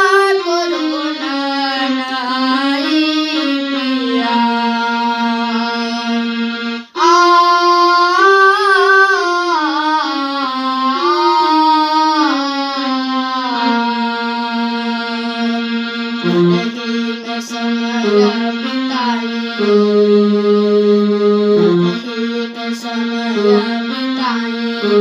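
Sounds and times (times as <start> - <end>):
boy singing: 0.0 - 25.0
electronic keyboard: 14.9 - 22.4.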